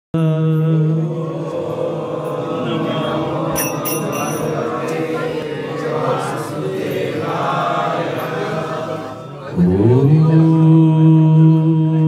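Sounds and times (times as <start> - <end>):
man chanting prayers: 0.2 - 5.2, 8.6 - 12.0.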